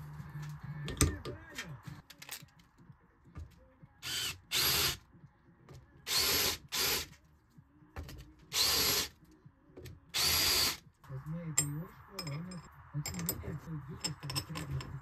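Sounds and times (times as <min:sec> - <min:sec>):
cordless drill whirring: 0:04.0 - 0:05.0, 0:06.1 - 0:07.1, 0:08.5 - 0:09.1, 0:10.2 - 0:10.8.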